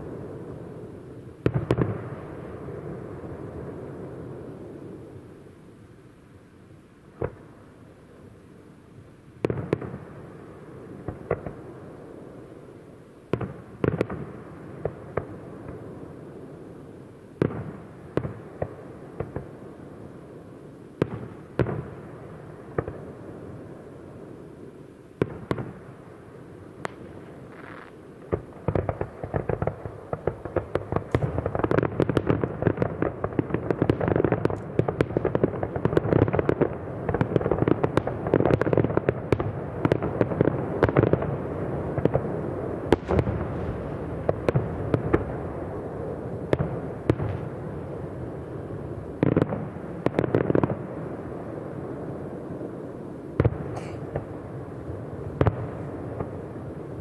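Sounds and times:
distant fireworks bangs: 0:00.0 - 0:04.6, 0:11.0 - 0:11.8, 0:26.8 - 0:52.4, 0:53.4 - 0:57.0.

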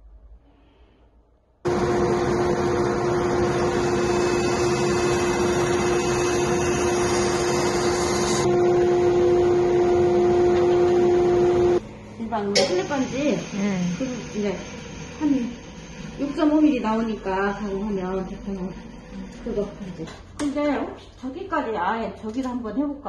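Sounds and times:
bandsaw cutting wood: 0:01.7 - 0:11.8.

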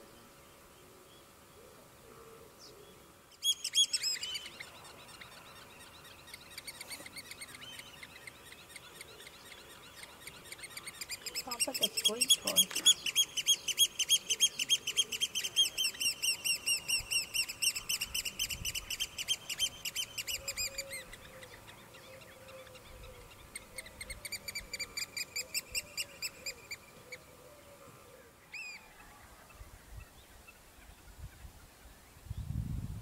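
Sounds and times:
oystercatchers piping: 0:03.4 - 0:27.2.

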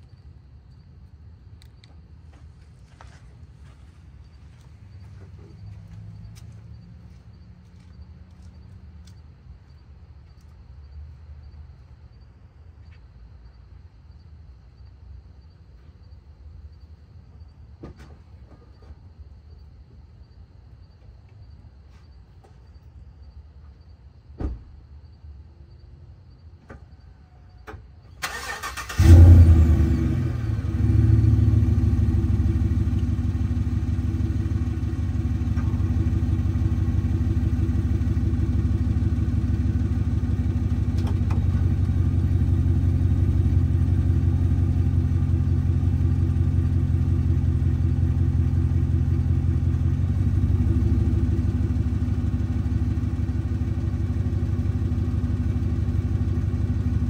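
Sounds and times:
truck engine cranking and idling: 0:00.1 - 0:11.6, 0:27.6 - 0:57.0.

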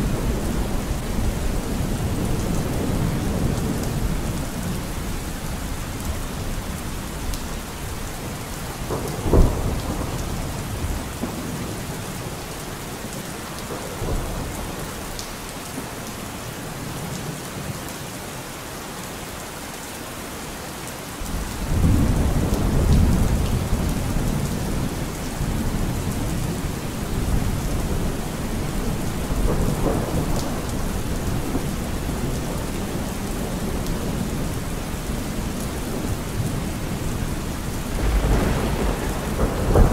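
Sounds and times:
low rumble of thunder: 0:00.0 - 0:12.4, 0:21.2 - 0:39.9
steady rain: 0:00.0 - 0:39.9
sharp thunderclap: 0:08.9 - 0:11.5, 0:37.9 - 0:39.9.

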